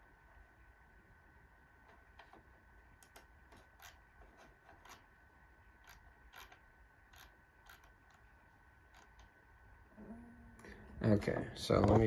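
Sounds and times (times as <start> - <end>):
computer mouse clicks: 3.0 - 5.0, 5.8 - 8.3.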